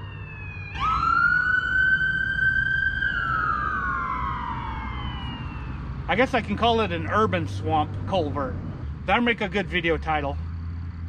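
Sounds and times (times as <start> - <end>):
emergency vehicle siren wailing: 0.0 - 7.9.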